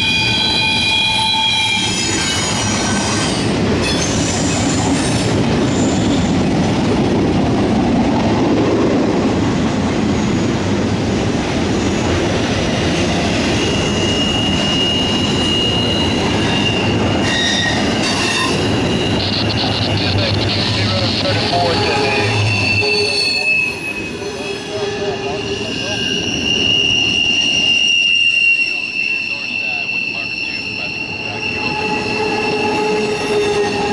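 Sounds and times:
high-pitched wheel squeal: 0:00.0 - 0:06.3, 0:13.4 - 0:33.9
steel wheels rumbling on rail: 0:00.0 - 0:33.9.

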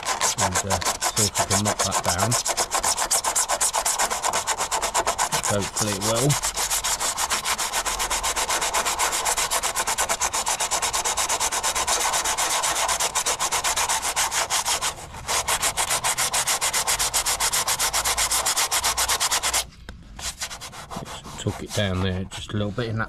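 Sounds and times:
hand sanding fibreglass: 0:00.0 - 0:23.0.

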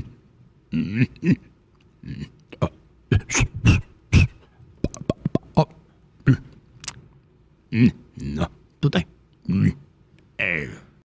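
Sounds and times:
person making vocal noises: 0:00.7 - 0:07.0, 0:10.4 - 0:11.0
mouth clicks: 0:01.0 - 0:07.1.

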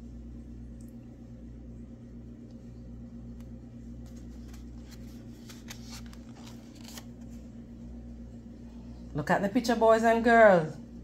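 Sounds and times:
steady low hum: 0:00.0 - 0:11.0
paper page turning: 0:04.0 - 0:07.5.

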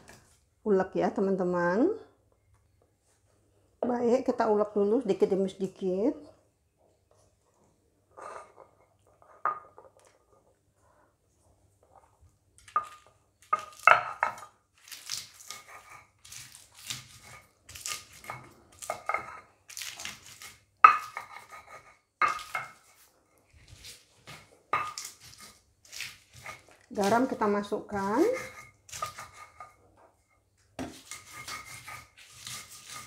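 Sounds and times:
stone pestle knocking and grinding: 0:12.7 - 0:14.5, 0:20.8 - 0:22.8, 0:24.7 - 0:25.5, 0:30.8 - 0:33.0.

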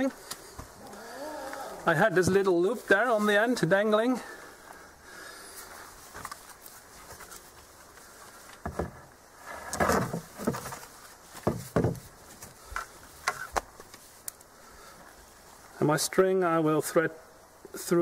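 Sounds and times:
wooden bow knocks and rustles: 0:08.6 - 0:12.1.

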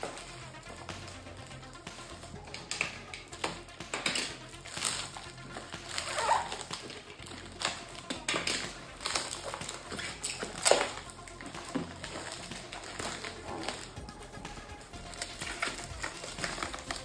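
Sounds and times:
plastic wrap crinkling and tearing: 0:00.0 - 0:17.0.

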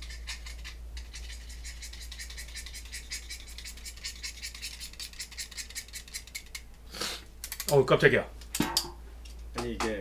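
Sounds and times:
knife scraping pencil: 0:00.0 - 0:06.6.

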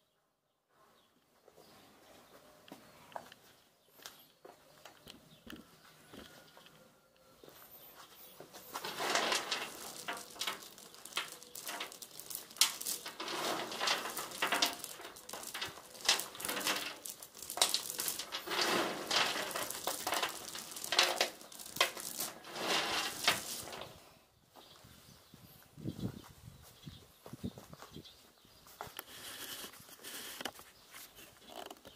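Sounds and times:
wooden pellets rattling in tub: 0:08.7 - 0:24.1.

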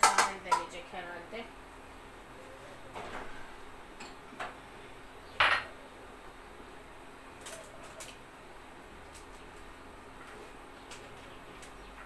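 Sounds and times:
kitchenware clattering: 0:00.0 - 0:00.8, 0:05.4 - 0:05.7.

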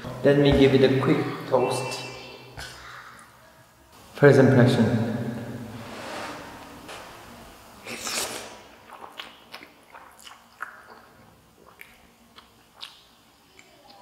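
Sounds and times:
person slurping noodles: 0:07.8 - 0:10.8
wet chewing mouth clicks: 0:07.9 - 0:14.0.

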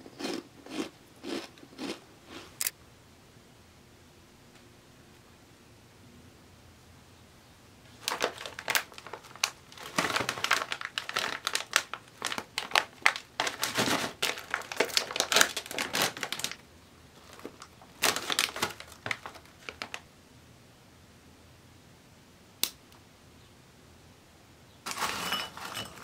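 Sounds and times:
chip bag crinkling: 0:07.9 - 0:16.6, 0:17.2 - 0:20.1, 0:24.9 - 0:26.0.

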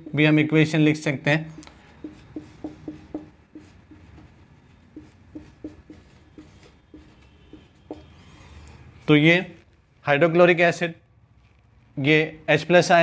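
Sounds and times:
marker squeaking on whiteboard: 0:01.4 - 0:09.2.

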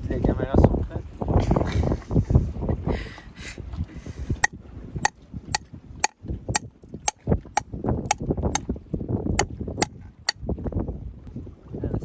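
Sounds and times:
metal tool knocking on shell: 0:06.0 - 0:08.2.

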